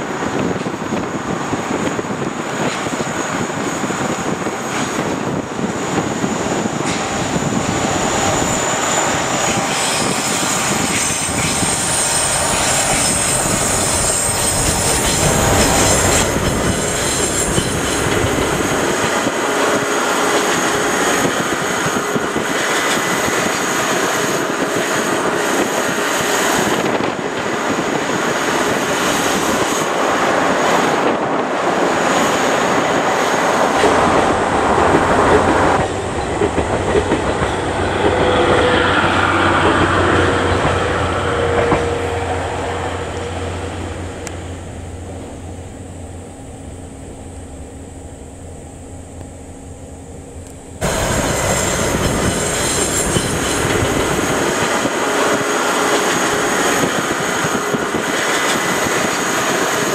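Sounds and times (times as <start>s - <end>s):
diesel locomotive engine: 0.0s - 59.9s
train wheels rattling over rail joints: 0.3s - 47.2s, 50.4s - 59.9s
wheel squeal: 8.4s - 18.8s.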